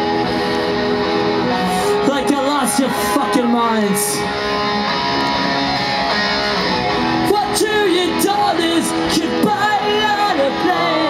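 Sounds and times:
punk rock band playing: 0:00.0 - 0:11.0
person singing: 0:07.4 - 0:11.0.

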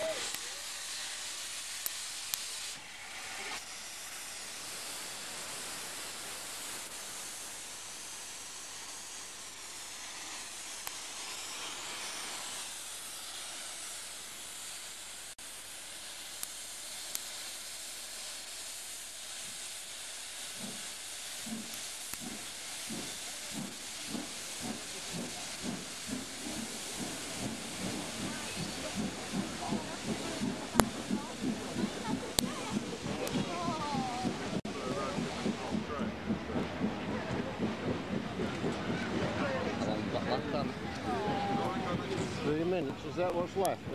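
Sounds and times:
steam hissing: 0:00.0 - 0:43.9
train rolling rhythmic beat: 0:20.6 - 0:43.9.

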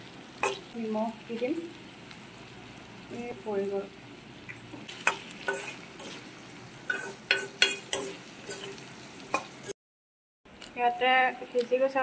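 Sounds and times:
faint sizzle: 0:00.0 - 0:09.8, 0:10.6 - 0:12.0
spatula scraping metal pan: 0:04.9 - 0:06.3, 0:06.9 - 0:08.8.

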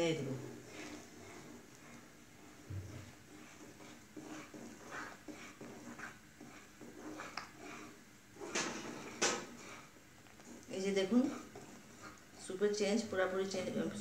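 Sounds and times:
spoon stirring soup: 0:00.0 - 0:13.8.

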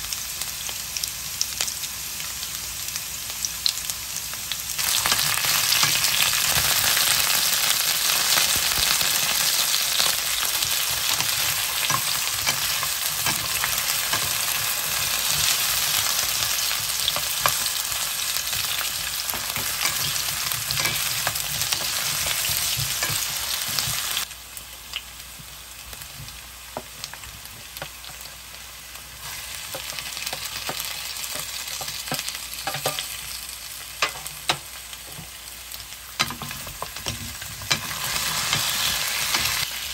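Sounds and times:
potatoes sizzling in oil: 0:00.0 - 0:39.9
spatula scraping and knocking pan: 0:10.0 - 0:24.2, 0:29.6 - 0:33.2, 0:36.2 - 0:39.6.

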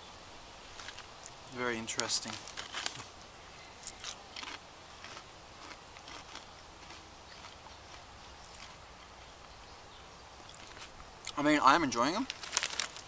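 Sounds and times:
potato chip crunching: 0:03.8 - 0:08.8, 0:12.2 - 0:13.0.

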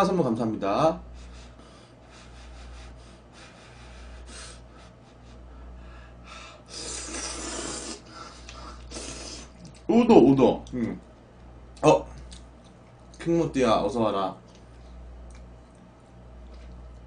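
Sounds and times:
noisy slurp: 0:06.7 - 0:09.8
person eating noodles: 0:06.7 - 0:09.8.

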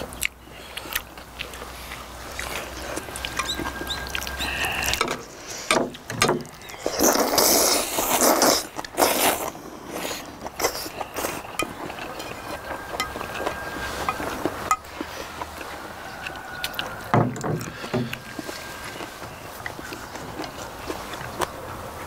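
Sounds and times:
chewing: 0:00.0 - 0:22.0
people slurping noodles: 0:06.7 - 0:17.0.

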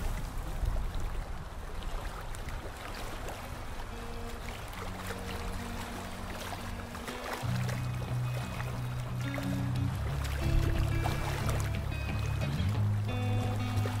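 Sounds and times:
paddle drips and splashes: 0:00.0 - 0:14.0
water lapping around kayak: 0:00.0 - 0:14.0
faint background music: 0:03.0 - 0:14.0.

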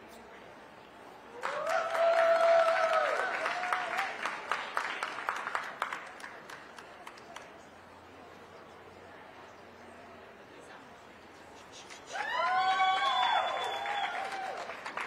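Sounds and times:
spectators clapping: 0:01.3 - 0:07.7, 0:11.9 - 0:15.0
whooping cheer: 0:01.4 - 0:04.3, 0:12.0 - 0:15.0.

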